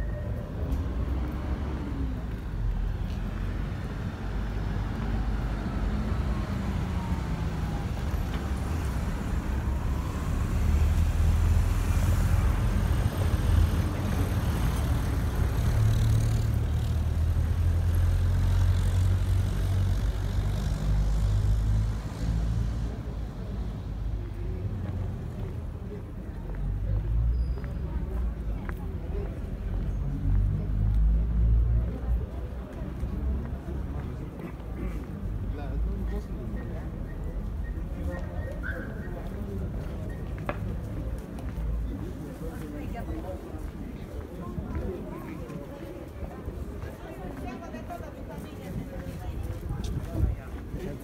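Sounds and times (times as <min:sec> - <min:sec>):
vehicle engines rumbling: 0:00.0 - 0:51.0.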